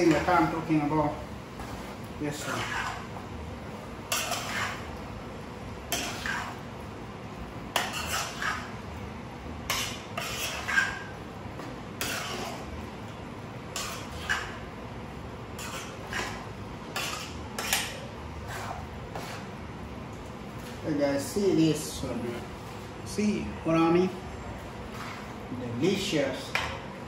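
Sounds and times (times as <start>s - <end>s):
spoon scraping cooking pot: 4.1s - 4.9s, 5.9s - 6.6s, 7.8s - 8.8s, 9.7s - 11.1s, 13.7s - 14.6s, 15.6s - 19.5s.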